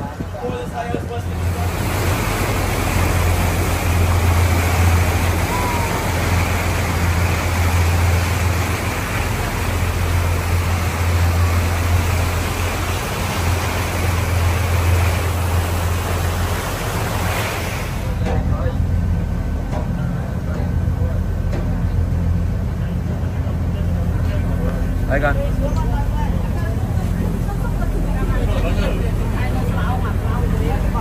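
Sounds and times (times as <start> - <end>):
motorboat engine droning: 0.0 - 31.0
rush of wind and water: 0.0 - 31.0.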